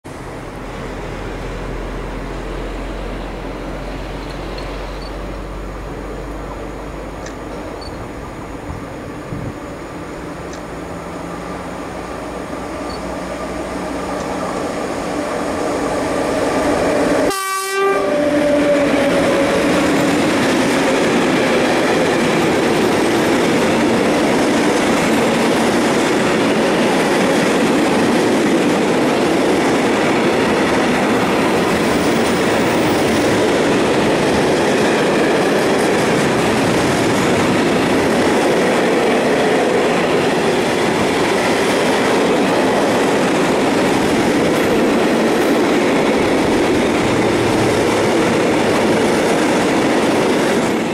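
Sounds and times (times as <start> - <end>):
electric locomotive approaching: 0.1 - 50.9
train wagons rolling past: 0.1 - 50.9
train horn blast: 17.2 - 19.6.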